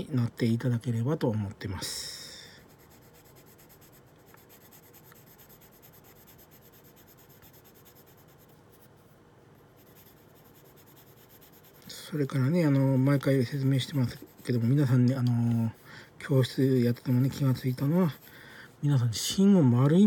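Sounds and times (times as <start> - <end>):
pencil scratching on paper: 2.6 - 18.4.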